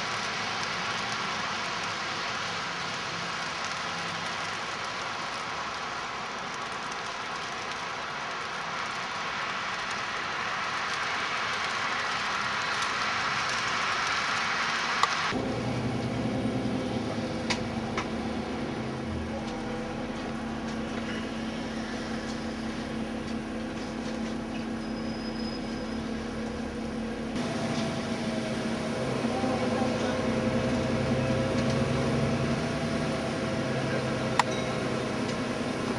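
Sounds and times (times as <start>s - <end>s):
hiss of heavy snow falling: 0.0s - 35.9s
low mechanical hum: 15.4s - 35.9s.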